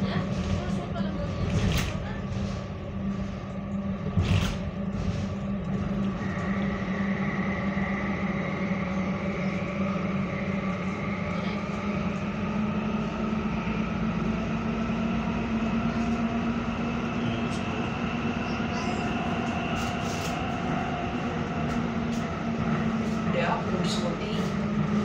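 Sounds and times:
train rumble and hum in tunnel: 0:00.0 - 0:25.0.

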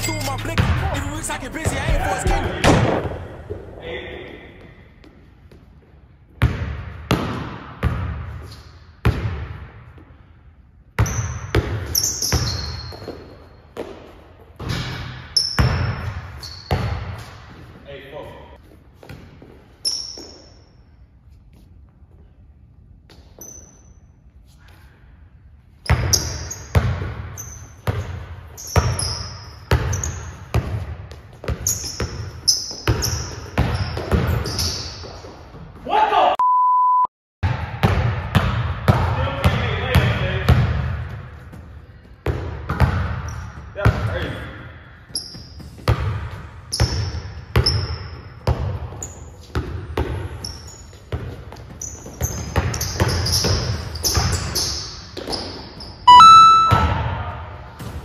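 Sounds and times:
basketball bouncing on wooden floor: 0:06.4 - 0:08.3, 0:29.7 - 0:35.2, 0:45.6 - 0:50.4
sneaker squeaks: 0:08.3 - 0:09.0, 0:11.0 - 0:22.4, 0:23.0 - 0:24.9, 0:25.7 - 0:35.9, 0:42.7 - 0:43.8, 0:45.0 - 0:46.0, 0:46.6 - 0:57.3.

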